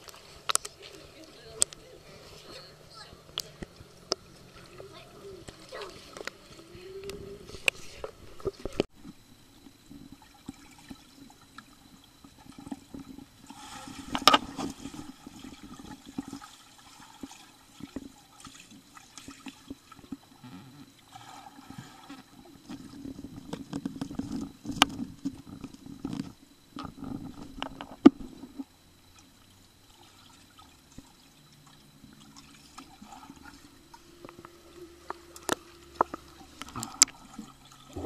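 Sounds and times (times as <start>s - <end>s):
muffled underwater sloshing and bubbling: 0.0s - 38.0s.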